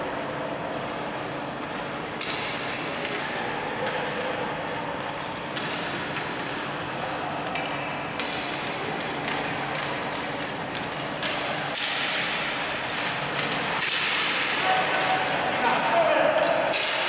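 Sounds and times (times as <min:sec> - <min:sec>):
hockey sticks clacking: 0:01.7 - 0:17.0.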